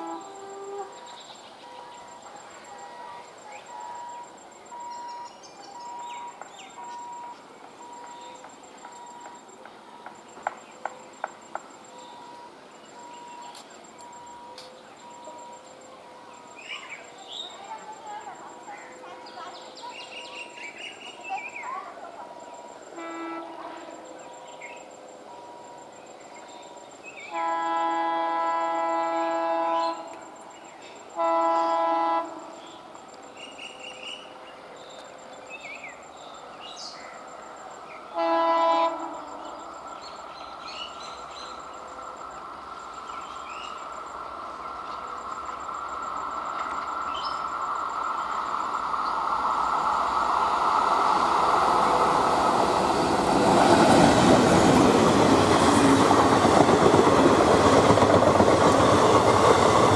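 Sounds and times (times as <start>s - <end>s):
diesel locomotive horn blasts: 0.0s - 8.4s, 22.8s - 24.2s, 27.2s - 30.4s, 31.1s - 32.9s, 38.1s - 39.9s
train rumbling past: 0.0s - 59.9s.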